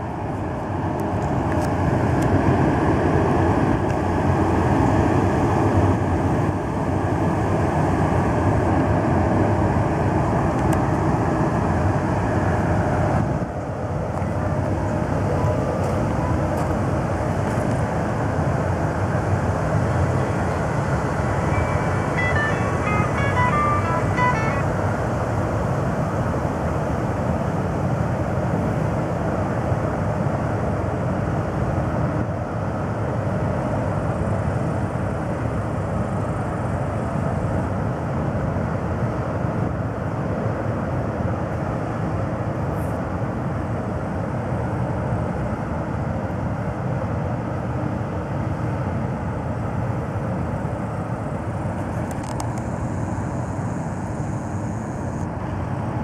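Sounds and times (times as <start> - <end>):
ship diesel engine rumble: 13.1 - 27.2.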